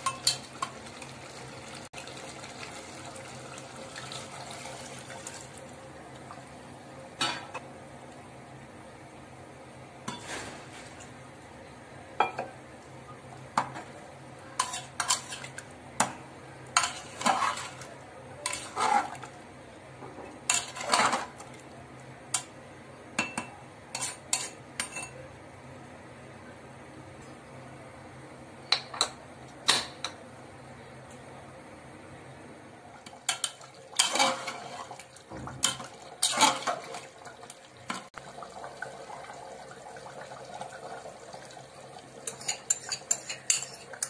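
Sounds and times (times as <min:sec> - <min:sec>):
water poured into pot: 0:00.2 - 0:05.6, 0:33.2 - 0:43.3
spoon clinking against pot: 0:42.3 - 0:44.0.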